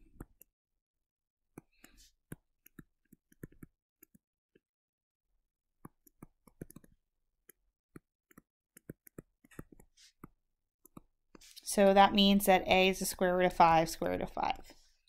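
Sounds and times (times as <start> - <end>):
stylus tapping on touchscreen: 1.5 - 4.2, 5.8 - 11.5.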